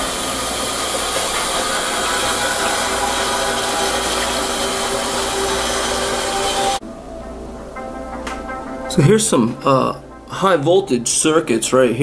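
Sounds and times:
torch flame hissing: 0:00.0 - 0:06.8.

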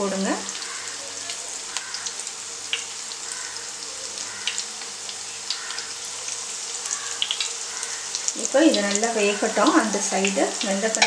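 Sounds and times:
patties sizzling in oil: 0:00.0 - 0:11.0.

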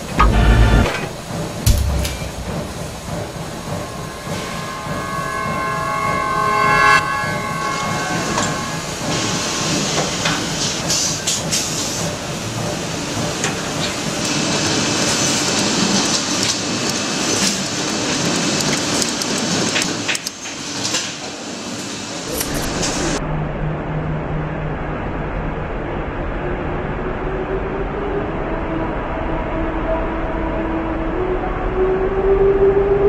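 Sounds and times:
machines rattling: 0:00.0 - 0:06.1
short whine: 0:00.0 - 0:09.7.

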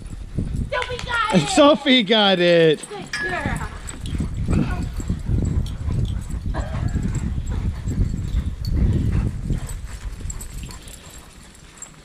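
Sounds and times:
dog panting hard: 0:02.7 - 0:12.0.

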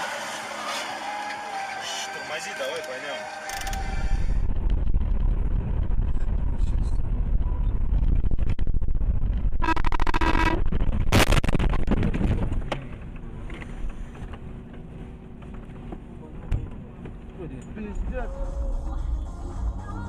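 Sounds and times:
horn blare: 0:00.0 - 0:04.5, 0:09.6 - 0:10.6
vehicle engine and road rumble: 0:00.0 - 0:20.0.

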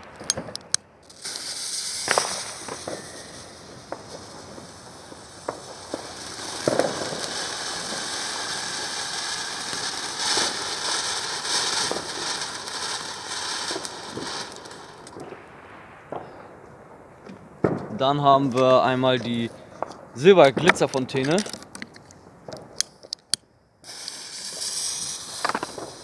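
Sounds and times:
firework fountain hissing: 0:00.0 - 0:15.5, 0:23.8 - 0:26.0
sharp firework pops: 0:00.0 - 0:16.6, 0:17.2 - 0:18.0, 0:19.8 - 0:26.0
firework crackles: 0:00.0 - 0:26.0.

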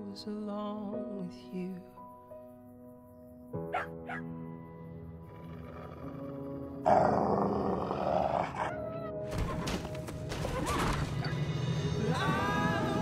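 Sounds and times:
wolf growling and snarling: 0:05.2 - 0:08.8
tense orchestral music: 0:06.3 - 0:13.0.

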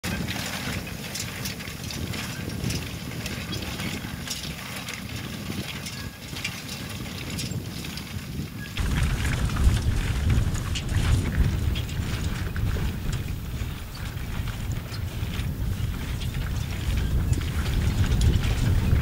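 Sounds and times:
rattle and rustle of hay: 0:00.1 - 0:19.0
low rumble: 0:08.8 - 0:19.0.

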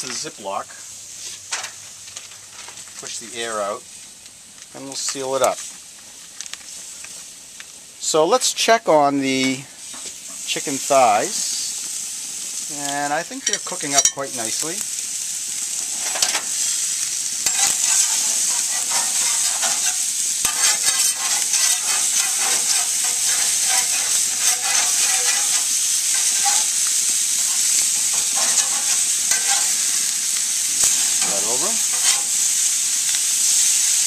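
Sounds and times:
chicken sizzling on a grill: 0:00.0 - 0:34.0
metal spatula scraping grate: 0:15.7 - 0:16.6, 0:17.4 - 0:32.4.

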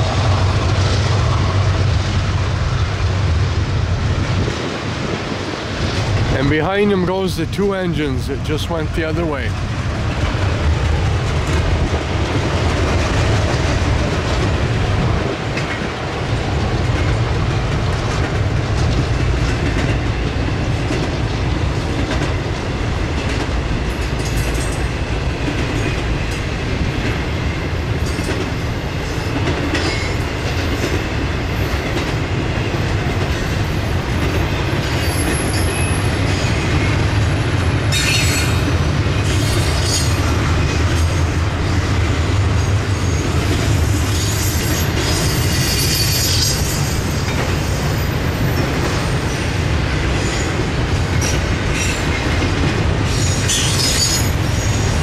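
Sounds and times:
train wheels rumbling on rails: 0:00.0 - 0:55.0
wheel squeals: 0:43.9 - 0:47.0.

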